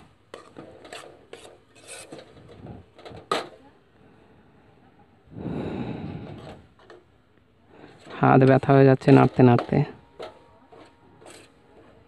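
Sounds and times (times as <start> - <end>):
metal spatula scraping a metal pan: 0.0 - 2.7, 7.8 - 12.0.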